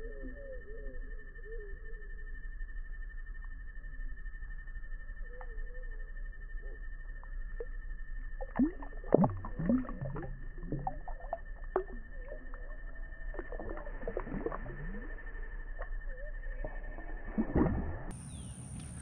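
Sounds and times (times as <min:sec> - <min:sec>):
faint high whine: 0:00.0 - 0:19.0
water sloshing and gurgling: 0:06.0 - 0:18.2.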